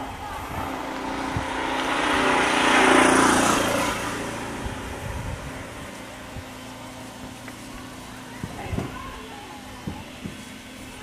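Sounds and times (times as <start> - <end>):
motorcycle passing by: 0.0 - 8.4.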